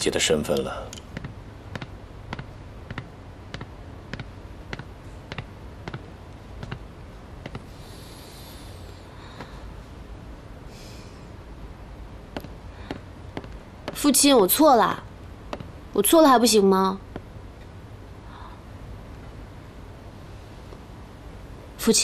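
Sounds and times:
low hum: 0.0s - 22.0s.

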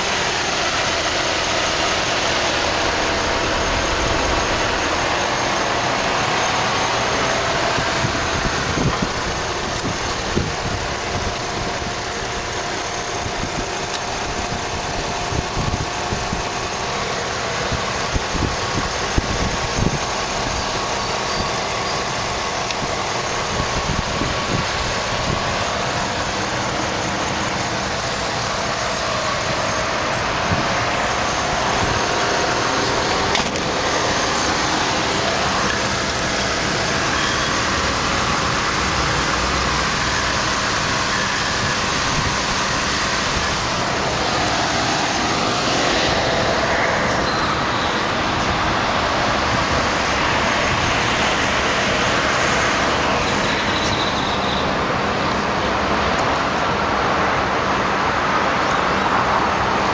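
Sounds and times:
pickup engine idling: 0.0s - 59.9s.

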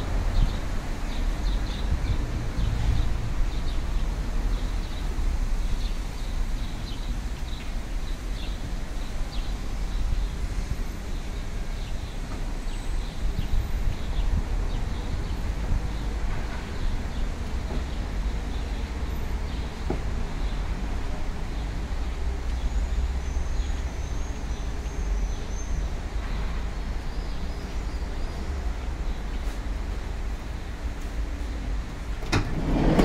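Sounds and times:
traffic rumble: 0.0s - 33.0s
wind: 0.0s - 33.0s
small birds chirping: 21.4s - 30.8s.

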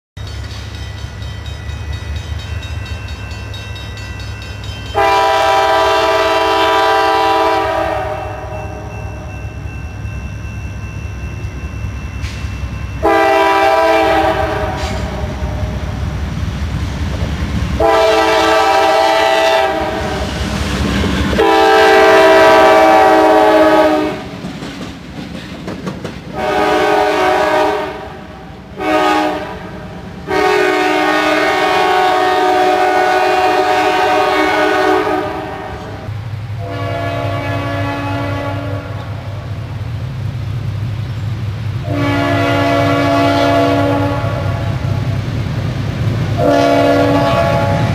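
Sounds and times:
train wheels on rails: 0.2s - 47.9s
locomotive air horn blasts: 4.9s - 8.9s, 13.0s - 15.9s, 17.8s - 20.5s, 21.2s - 24.3s, 26.3s - 39.4s, 41.8s - 45.0s, 46.4s - 47.9s
distant train horn: 4.9s - 9.7s, 12.2s - 16.2s, 17.8s - 24.4s, 26.3s - 39.6s, 41.8s - 45.2s, 46.2s - 47.9s.

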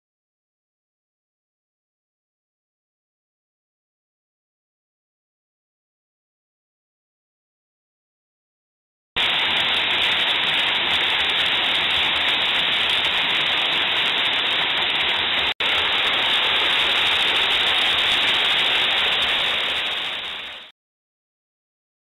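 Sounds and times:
waterfall rushing: 9.2s - 20.7s.

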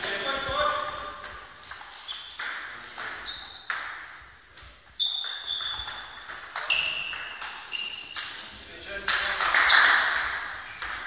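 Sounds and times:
table tennis ball pinging: 0.8s - 4.2s, 5.0s - 8.4s, 9.1s - 11.0s.

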